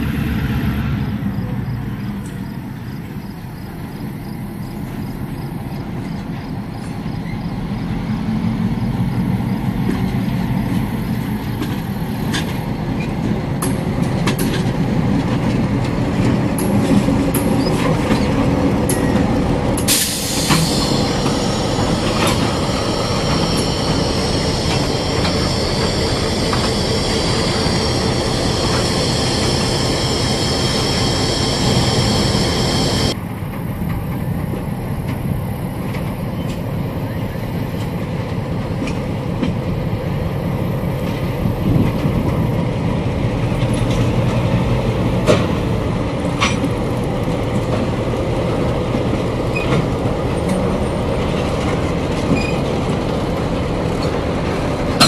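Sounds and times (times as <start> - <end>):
diesel locomotive engines rumbling: 0.0 - 55.0
wheel flanges squealing on rails: 1.3 - 33.2, 46.4 - 55.0.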